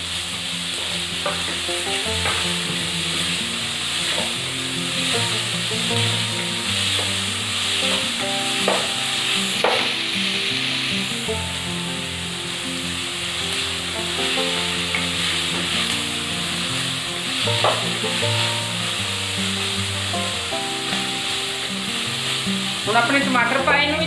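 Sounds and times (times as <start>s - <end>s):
vegetables sizzling in oil: 0.0s - 24.0s
spatula tapping pan: 0.8s - 3.3s, 4.0s - 4.4s, 5.3s - 10.1s, 14.2s - 16.0s, 17.4s - 18.5s.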